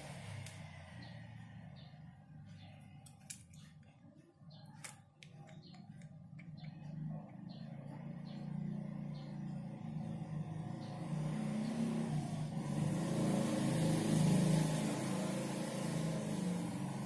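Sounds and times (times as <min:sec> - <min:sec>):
faint low vehicle rumble: 0:00.0 - 0:12.7.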